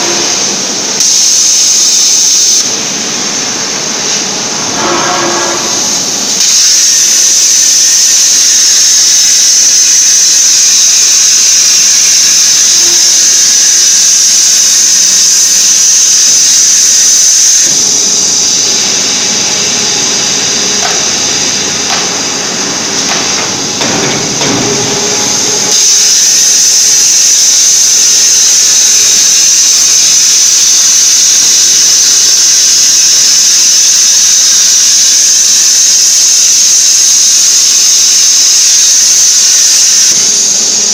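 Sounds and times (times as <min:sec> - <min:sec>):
low rough machine noise: 0:00.0 - 0:40.9
plasma torch cutting hiss: 0:00.0 - 0:40.9
knocks: 0:23.0 - 0:25.2.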